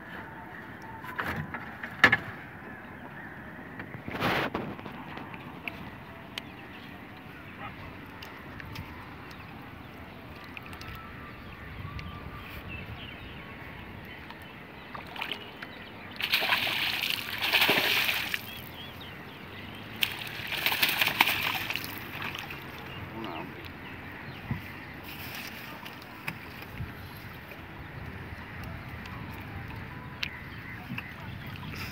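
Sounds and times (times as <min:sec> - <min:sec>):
net splashing in water: 0:16.2 - 0:18.7, 0:20.0 - 0:22.8.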